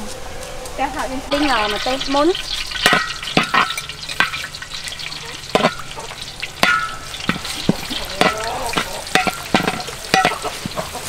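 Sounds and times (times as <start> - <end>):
curry paste sizzling in oil: 1.3 - 11.0
metal spatula scraping a wok: 1.3 - 11.0.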